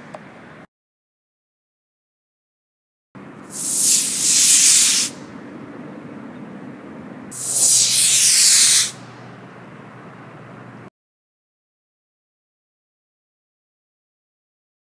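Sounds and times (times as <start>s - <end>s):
rocket motor hissing: 3.5s - 5.2s, 7.3s - 9.0s.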